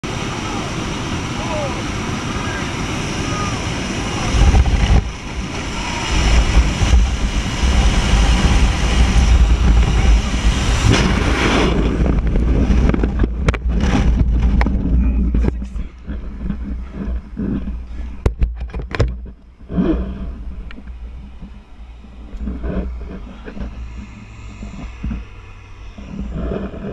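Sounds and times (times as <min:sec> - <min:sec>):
heavy low rumble: 0:00.0 - 0:26.9
wind buffeting microphone: 0:00.0 - 0:26.9
parachute canopy flapping: 0:04.2 - 0:17.9.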